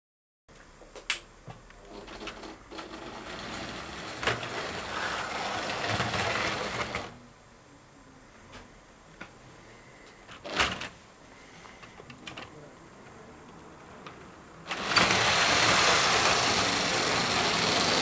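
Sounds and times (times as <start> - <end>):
model train running past: 14.7 - 18.0.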